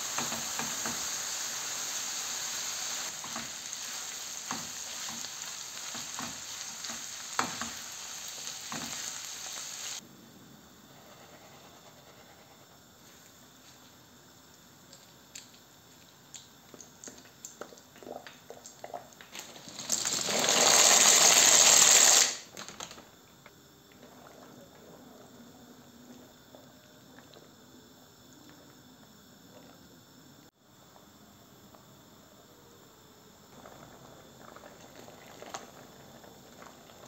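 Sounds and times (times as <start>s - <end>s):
pasta pouring into water: 0.0s - 10.0s, 19.4s - 23.0s, 33.5s - 37.0s.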